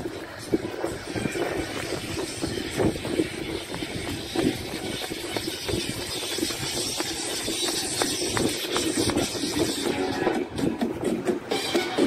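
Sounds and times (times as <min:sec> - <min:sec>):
steady outdoor rumble: 0:00.0 - 0:12.0
footsteps thumping: 0:00.1 - 0:12.0.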